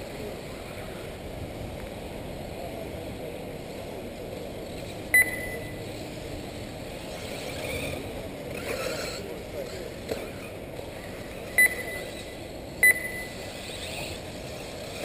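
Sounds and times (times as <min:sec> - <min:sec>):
electric rc cars running: 0:00.0 - 0:15.0
short electronic beep: 0:05.2 - 0:05.8, 0:11.6 - 0:13.5.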